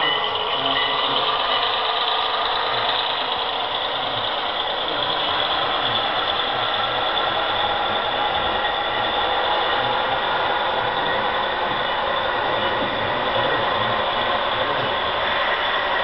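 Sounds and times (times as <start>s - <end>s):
model train clatter and whir: 0.0s - 16.0s.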